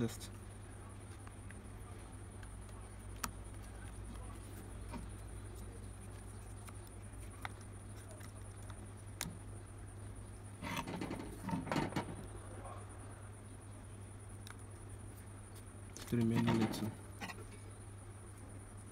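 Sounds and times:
steady low hum: 0:00.0 - 0:18.9
scraping and rustling: 0:10.6 - 0:12.3, 0:16.0 - 0:17.6.

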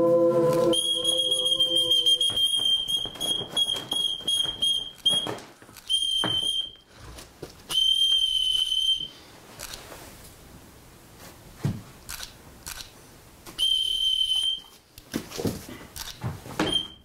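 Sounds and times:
whistle blasts: 0:00.0 - 0:06.8, 0:07.7 - 0:09.2, 0:13.6 - 0:14.7.

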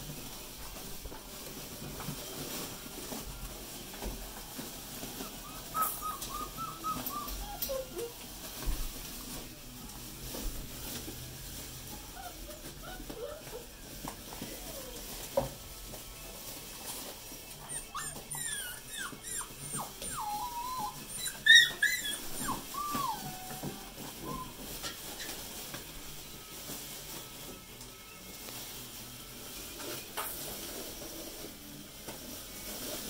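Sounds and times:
puppies whining and yipping: 0:04.9 - 0:08.6, 0:11.9 - 0:15.2, 0:17.5 - 0:25.6.

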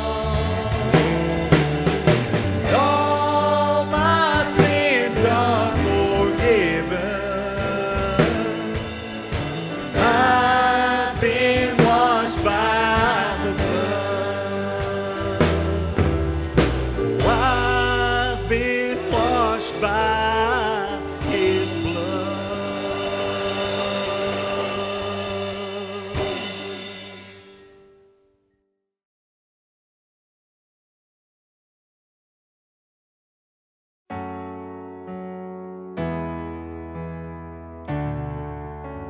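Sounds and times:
man singing into a microphone: 0:00.0 - 0:01.7, 0:02.6 - 0:16.4, 0:17.2 - 0:27.0
acoustic guitar: 0:00.0 - 0:27.8
drums: 0:00.0 - 0:28.0
bass: 0:00.0 - 0:28.1, 0:36.0 - 0:39.0.

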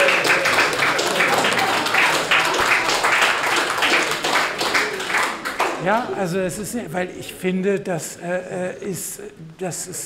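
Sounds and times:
audience applauding: 0:00.0 - 0:05.8.

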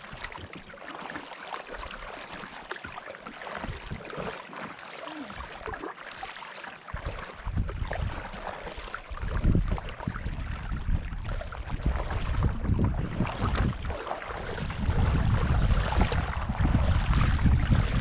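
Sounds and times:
paddles splashing in water: 0:00.0 - 0:18.0
wind rumbling on microphone: 0:03.5 - 0:04.3, 0:06.9 - 0:18.0.

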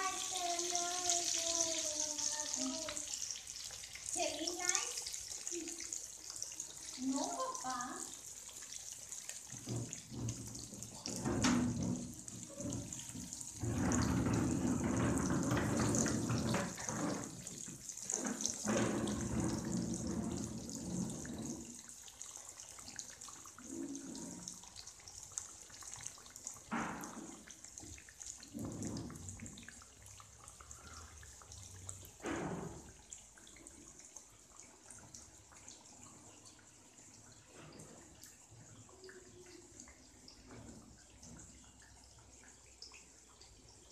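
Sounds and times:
fish sizzling in hot oil: 0:00.0 - 0:21.5.

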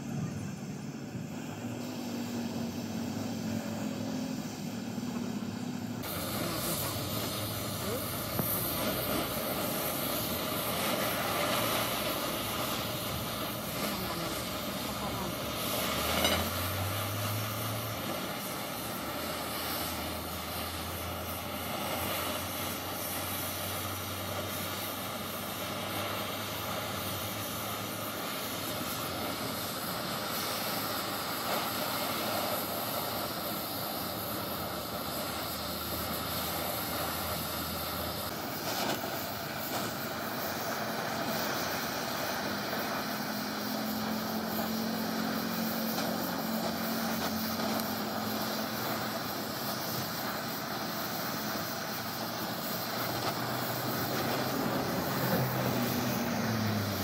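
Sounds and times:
gas torch flame hissing: 0:00.0 - 0:57.0.

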